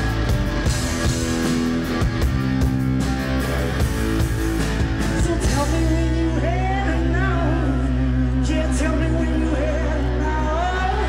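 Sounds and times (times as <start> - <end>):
drum kit: 0.0 - 6.3
electric guitar playing: 0.0 - 11.0
man singing: 5.1 - 11.0.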